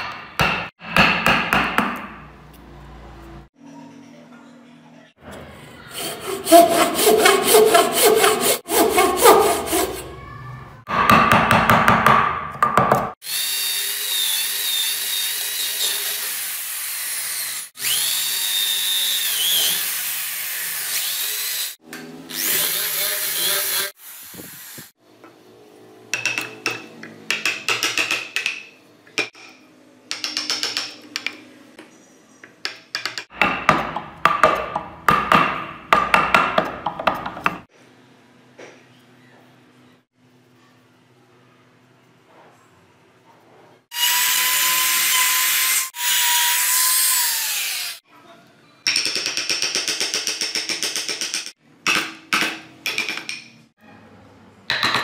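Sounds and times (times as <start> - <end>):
chisel scraping wood: 5.8 - 10.2
hand saw cutting wood: 5.8 - 10.2.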